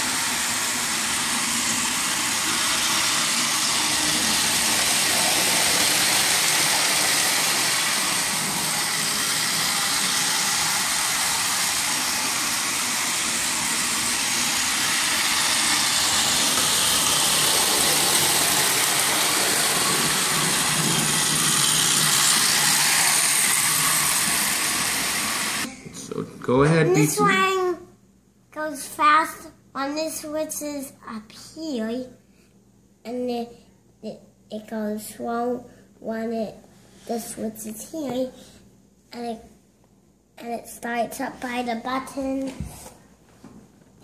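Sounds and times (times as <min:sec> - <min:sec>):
toy train motor whirring: 0:00.0 - 0:25.7.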